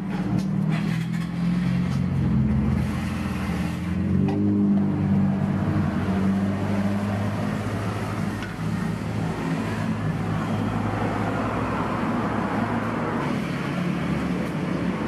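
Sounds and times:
road traffic noise: 0.0 - 15.0.

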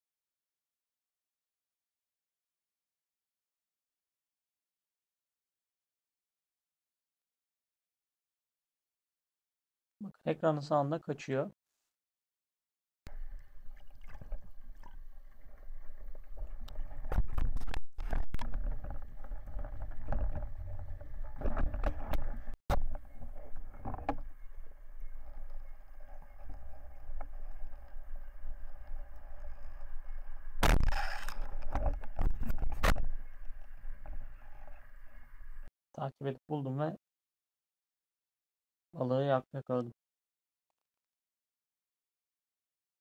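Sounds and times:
faint steady hum: 13.1 - 17.5
underwater water rush: 13.1 - 35.6.

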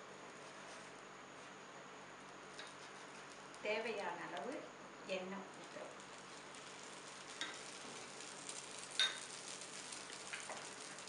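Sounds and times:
batter and oil sizzling on griddle: 0.0 - 11.0.

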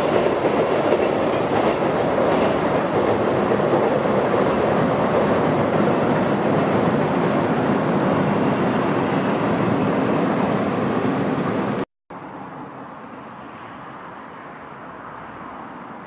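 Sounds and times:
train rumbling over bridge: 0.0 - 16.0
quiet outdoor background: 11.6 - 16.0.

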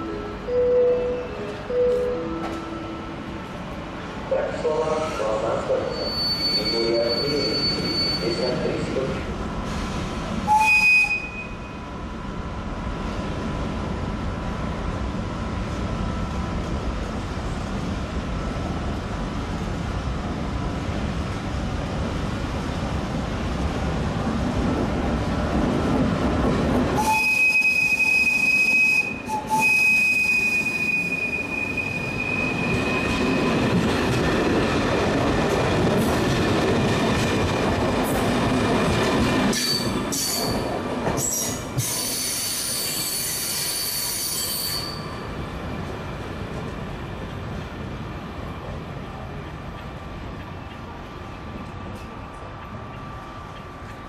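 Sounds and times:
electric train rumbling: 0.0 - 54.0
train wheel squeal: 5.0 - 8.9, 10.5 - 11.8, 27.0 - 33.6, 39.5 - 45.3.

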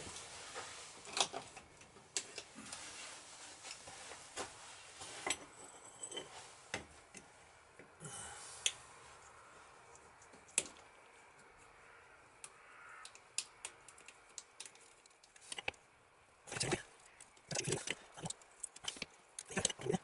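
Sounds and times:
metal tools clinking on workbench: 5.2 - 6.5.

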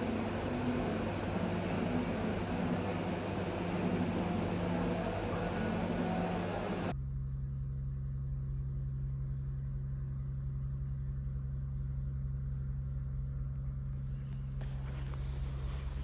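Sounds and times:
restaurant background noise: 0.0 - 6.9
low mechanical hum: 0.0 - 16.0.

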